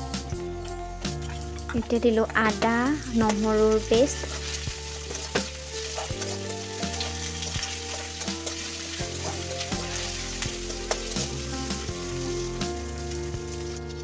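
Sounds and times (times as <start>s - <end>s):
onions sizzling in hot oil: 0.0s - 14.0s
metal spatula scraping pan: 4.1s - 11.5s.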